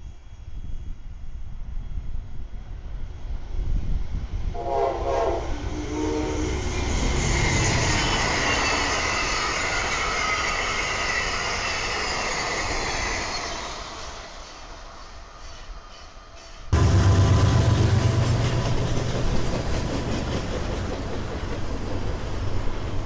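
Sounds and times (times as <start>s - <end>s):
train wheels roaring on rails: 0.0s - 23.0s
train horn chord: 4.6s - 6.7s, 16.8s - 18.5s.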